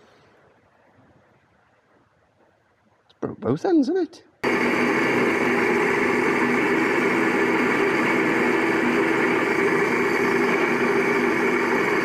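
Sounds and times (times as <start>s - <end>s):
drill press motor humming: 4.4s - 12.0s.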